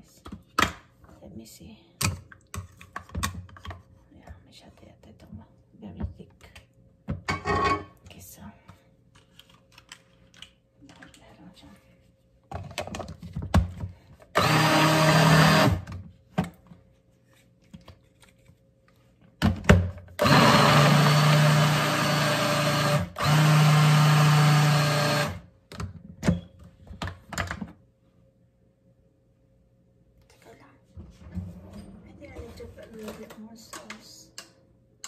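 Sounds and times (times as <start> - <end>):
blender motor running: 14.4 - 15.9, 20.2 - 25.4.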